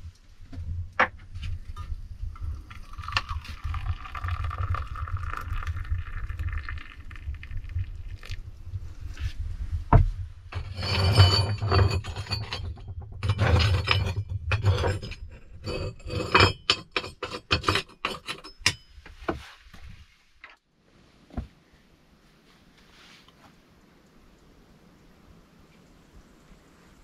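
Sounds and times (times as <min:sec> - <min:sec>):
metal rattling: 0:10.5 - 0:18.9.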